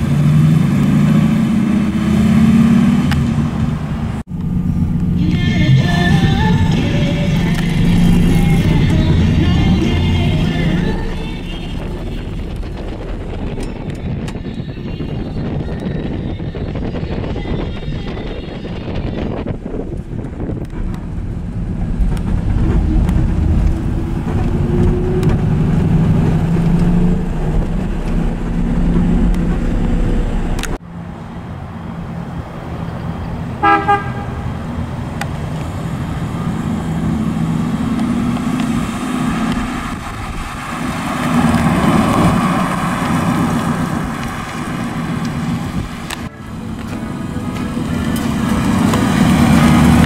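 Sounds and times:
car engine accelerating: 0.0s - 14.7s, 19.6s - 30.9s, 34.6s - 50.0s
car horn toot: 33.6s - 34.5s.

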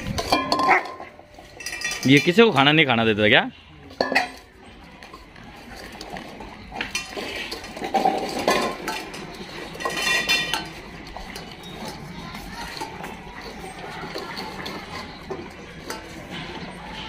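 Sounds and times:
metal bowls clinking on tiled floor: 0.0s - 17.0s
ringing clank of metal bowl: 0.2s - 2.3s.

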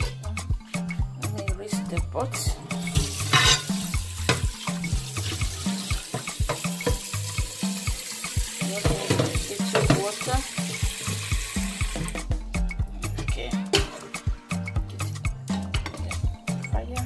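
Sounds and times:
background music with bass beat: 0.0s - 7.6s, 11.3s - 17.0s
tap water running into pot: 2.6s - 12.3s.

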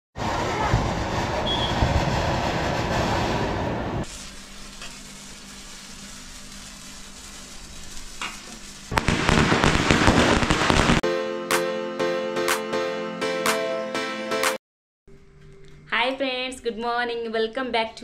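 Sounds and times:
firework crackling with rapid pops: 4.0s - 11.0s
fountain fireworks hissing: 4.0s - 11.0s.

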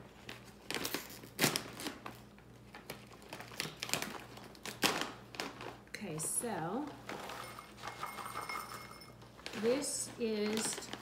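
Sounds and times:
plastic pouch crinkling and tearing: 0.2s - 5.8s.

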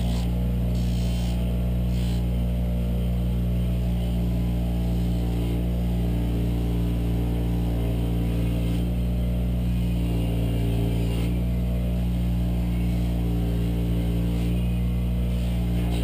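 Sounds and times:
bench grinder motor humming: 0.0s - 2.6s, 3.4s - 16.0s.

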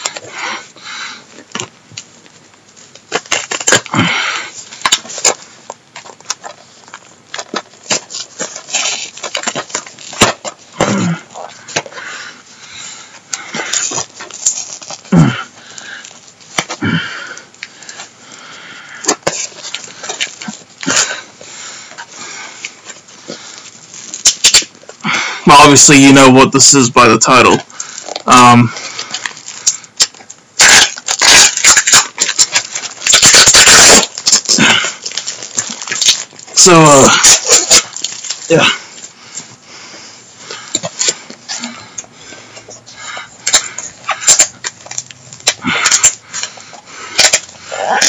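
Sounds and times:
packaging rustling and crinkling: 1.3s - 18.2s, 19.0s - 25.0s, 27.6s - 39.6s, 40.3s - 48.0s.

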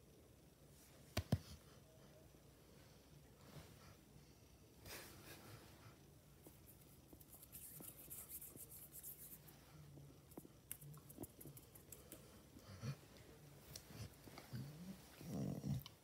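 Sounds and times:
hand stroking dog fur: 6.5s - 9.7s.

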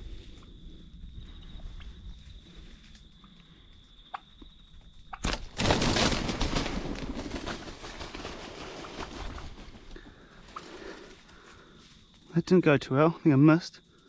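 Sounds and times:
wing-beats and branches crashing: 5.1s - 11.6s.

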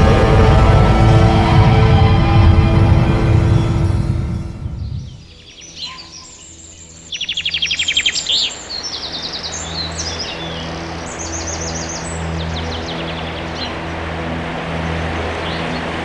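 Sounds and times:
low steady hum: 0.0s - 5.4s
music: 0.0s - 16.0s
songbirds chirping and singing: 0.0s - 16.0s
fast bird trill: 4.8s - 13.9s.

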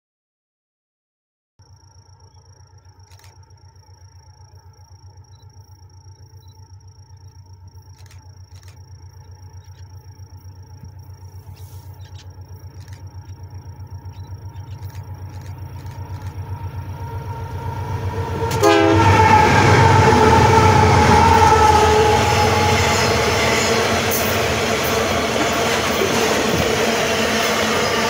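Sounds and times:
diesel locomotive engine rumble: 1.6s - 28.0s
wagons rolling on rails: 22.3s - 28.0s.

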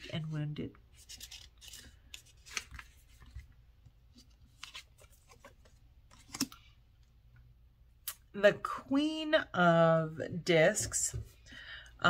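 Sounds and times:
cards flicking and sliding: 6.1s - 6.6s.

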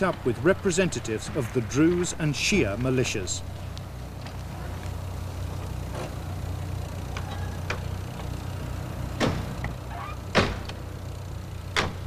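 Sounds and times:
steady low hum: 0.0s - 12.0s
car doors slamming: 9.1s - 10.8s, 11.7s - 12.0s.

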